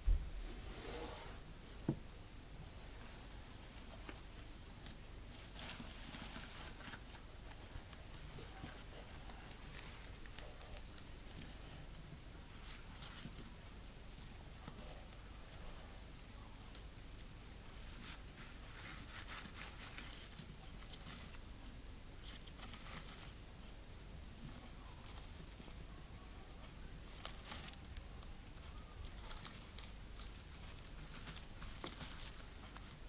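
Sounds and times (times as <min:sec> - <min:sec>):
gerbils rustling in paper bedding: 0:02.8 - 0:33.0
high chirps: 0:21.2 - 0:21.4, 0:22.2 - 0:23.3, 0:29.2 - 0:29.6.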